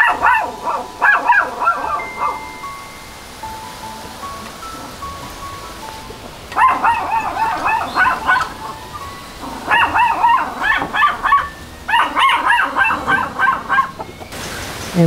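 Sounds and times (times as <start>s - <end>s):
dog barking high yaps: 0.0s - 2.4s, 6.5s - 8.8s, 9.4s - 14.1s.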